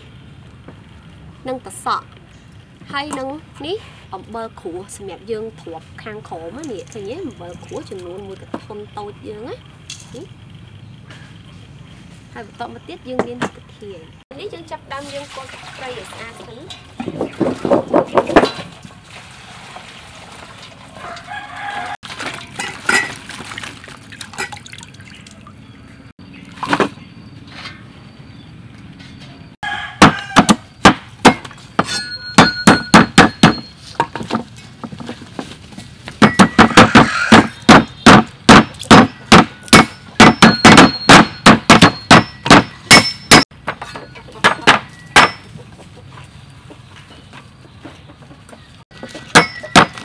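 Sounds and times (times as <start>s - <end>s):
cleaver chopping on wooden block: 30.0s - 34.2s, 36.2s - 43.4s, 49.3s - 50.0s.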